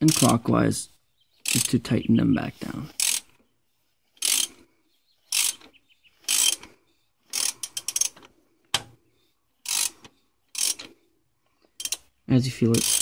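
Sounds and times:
ratchet clicking: 0:00.0 - 0:00.3, 0:01.4 - 0:01.8, 0:02.9 - 0:03.4, 0:04.2 - 0:04.6, 0:05.3 - 0:08.9, 0:09.6 - 0:11.0, 0:11.8 - 0:12.1, 0:12.7 - 0:13.0.

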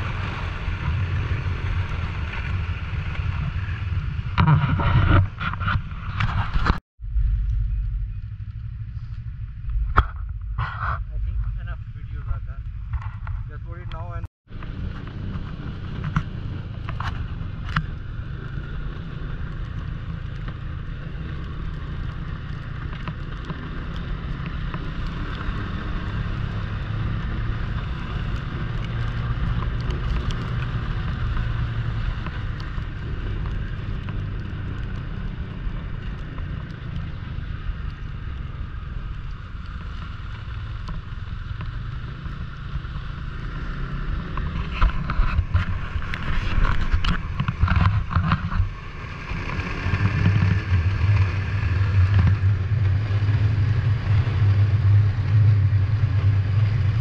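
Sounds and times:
snowmobile engine running: 0:07.6 - 0:57.0.

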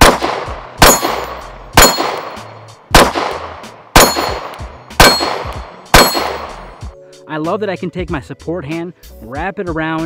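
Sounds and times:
pistol shots cracking: 0:00.0 - 0:06.8.

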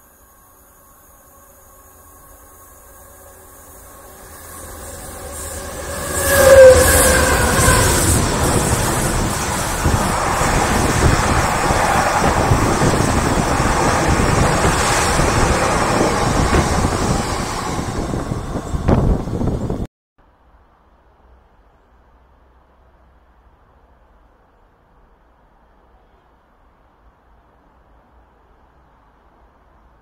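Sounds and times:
locomotive passing: 0:01.1 - 0:19.9.

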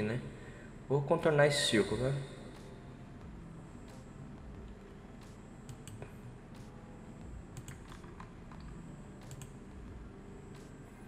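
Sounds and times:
faint low hum: 0:00.0 - 0:11.0
computer mouse clicking: 0:05.6 - 0:06.1, 0:07.5 - 0:09.6.

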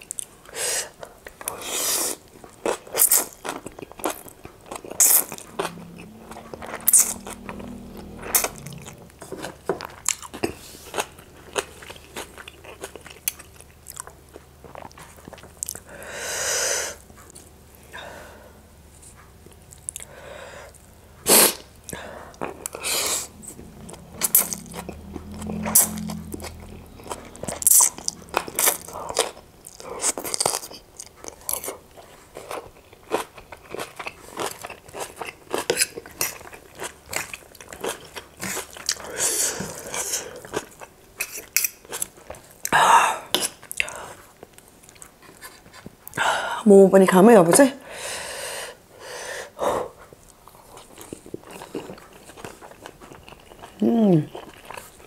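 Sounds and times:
wet chewing: 0:02.4 - 0:16.0, 0:50.2 - 0:55.0.

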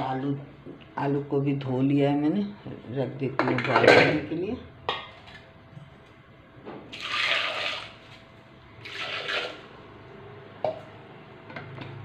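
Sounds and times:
water running: 0:06.9 - 0:08.2.

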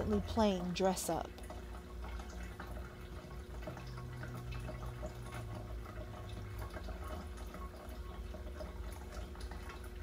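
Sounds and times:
low steady hum: 0:00.0 - 0:10.0
water dripping and trickling: 0:00.0 - 0:10.0.

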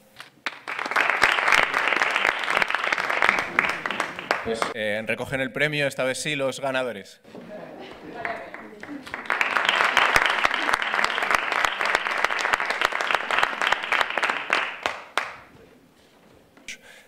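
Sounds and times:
audience applauding: 0:00.4 - 0:04.8, 0:07.8 - 0:15.6.

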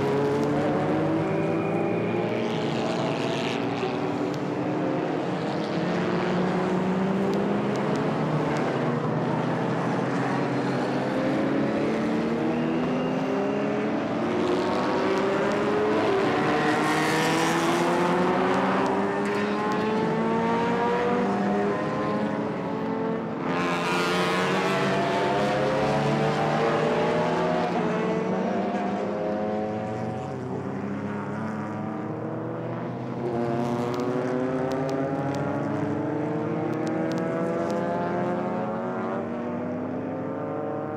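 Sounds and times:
cars passing close by: 0:00.0 - 0:40.9
racing car engines accelerating: 0:00.0 - 0:40.9.

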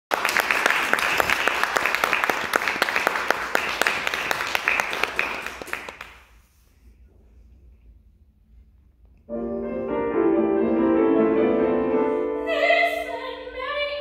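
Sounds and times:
audience applauding: 0:00.1 - 0:06.3.

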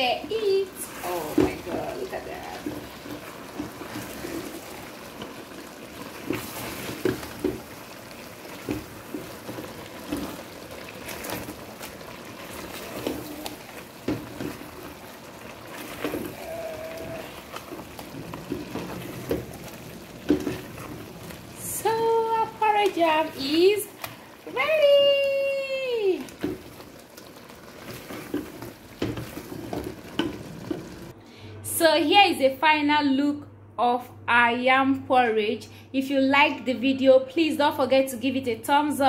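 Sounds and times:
porridge sloshing and squelching: 0:00.1 - 0:31.2.

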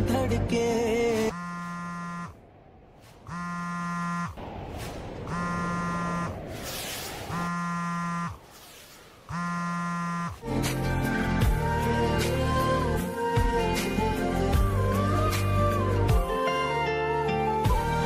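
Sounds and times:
phone buzzing: 0:01.3 - 0:02.4, 0:03.3 - 0:04.4, 0:05.3 - 0:06.4, 0:07.3 - 0:08.5, 0:09.3 - 0:10.4.

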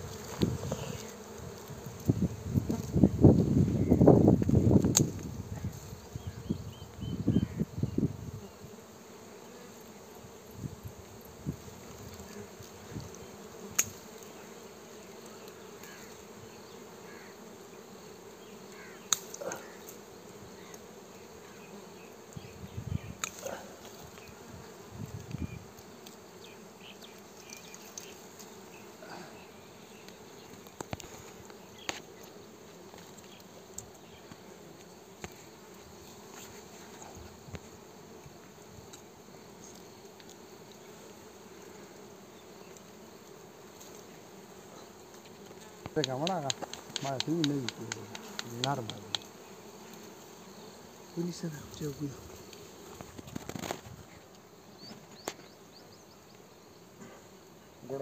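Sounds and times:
bees buzzing: 0:00.0 - 0:58.0
twigs snapping and leaves rustling: 0:04.4 - 0:05.3, 0:23.2 - 0:24.3, 0:45.2 - 0:49.3, 0:52.4 - 0:54.0.

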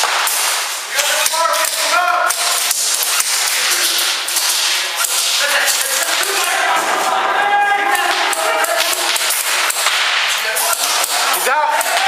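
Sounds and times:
airsoft gun shots echoing: 0:08.0 - 0:12.0.

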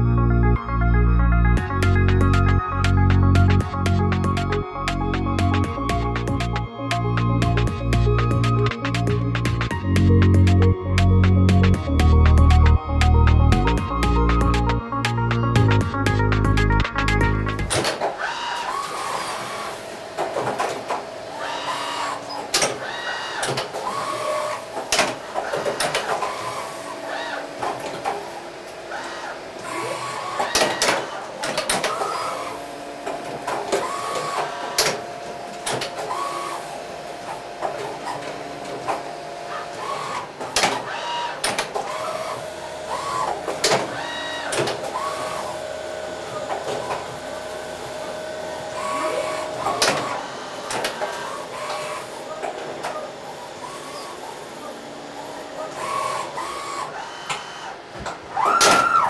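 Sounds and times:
axis drives whining: 0:00.0 - 0:59.0
machine clicks and clunks: 0:16.2 - 0:48.0, 0:48.6 - 0:53.9
steady spindle whine: 0:16.7 - 0:57.9.

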